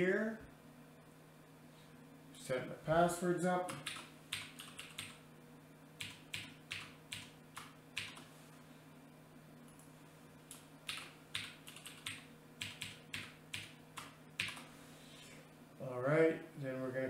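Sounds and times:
keyboard keys clicking: 0:03.7 - 0:05.2, 0:10.5 - 0:14.7.

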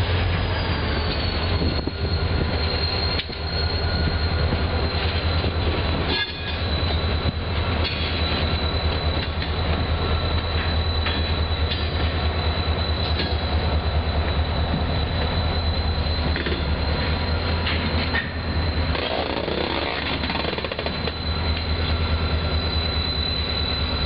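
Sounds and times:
locomotive engines rumbling: 0:00.0 - 0:24.0
wheel squeal on rail: 0:00.0 - 0:24.0.

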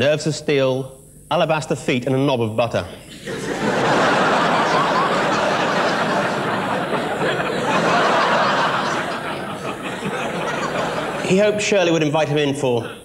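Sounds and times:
audience laughing: 0:03.1 - 0:11.6.

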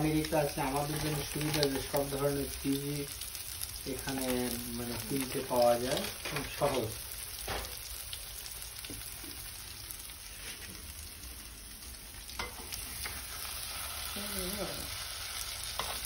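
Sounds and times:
food sizzling in frying pan: 0:00.0 - 0:16.0
wooden spatula scraping pan: 0:00.7 - 0:01.8.

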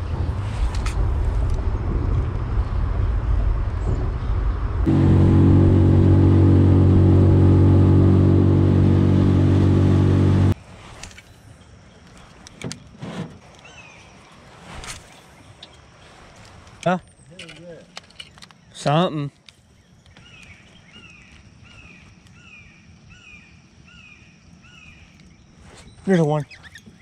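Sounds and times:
low rumbling noise: 0:00.0 - 0:10.6
engine droning: 0:01.4 - 0:10.6.

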